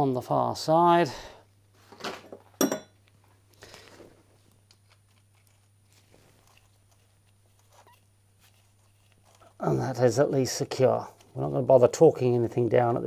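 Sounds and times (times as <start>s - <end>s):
metal clink: 2.6s - 3.0s.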